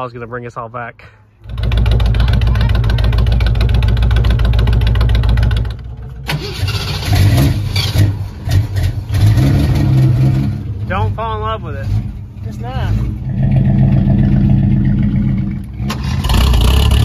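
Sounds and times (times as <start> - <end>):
car engine idling unevenly: 0.9 - 9.2
loud engine running: 1.4 - 17.0.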